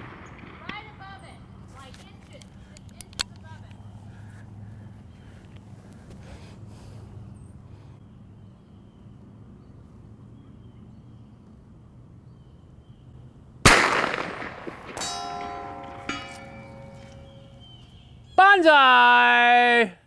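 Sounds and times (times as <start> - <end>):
revolver gunshot: 0.0 - 1.0, 13.6 - 17.0
steel target plate ringing: 14.1 - 17.8.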